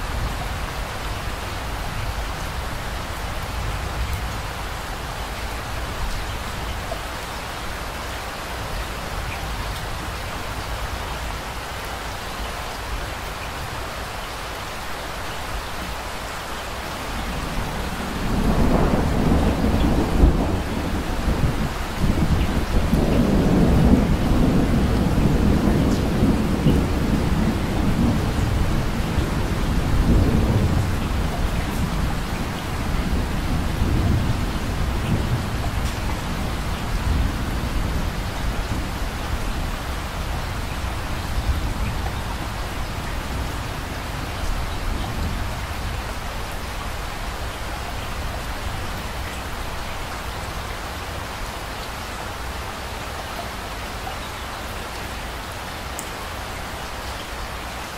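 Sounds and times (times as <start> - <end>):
steady rain hissing: 0.0 - 57.9
rolling thunder: 17.2 - 46.6.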